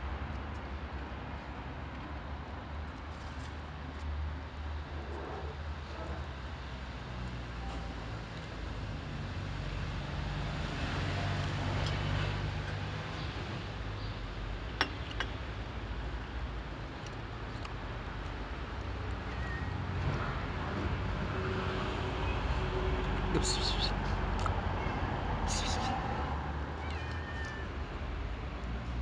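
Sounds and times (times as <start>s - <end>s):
street traffic rumble: 0.0s - 29.0s.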